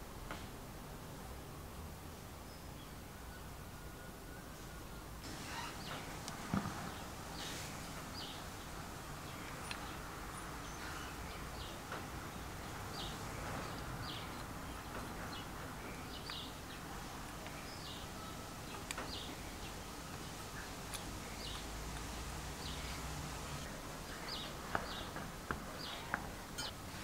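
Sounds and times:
bird chirping: 5.3 - 21.7, 22.6 - 27.0.

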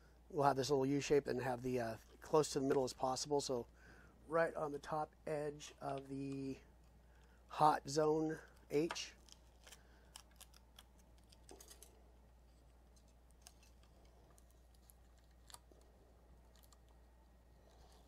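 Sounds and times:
low electrical hum: 0.0 - 18.0
faint clicks and handling: 8.4 - 18.0.

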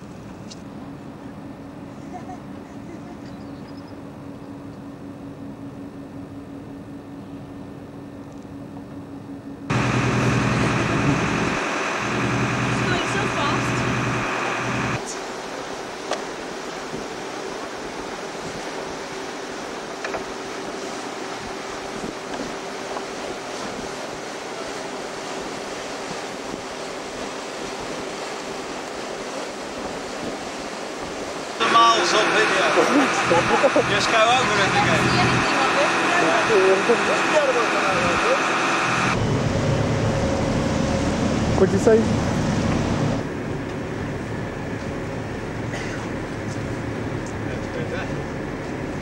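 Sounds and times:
machinery hum: 0.7 - 25.8, 28.5 - 49.0
water washing along hull: 9.7 - 49.0
wind on microphone: 21.3 - 31.6.

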